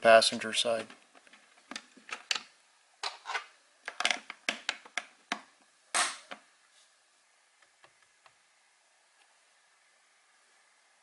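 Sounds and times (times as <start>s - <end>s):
plastic cover clicking and tapping: 3.9s - 6.4s.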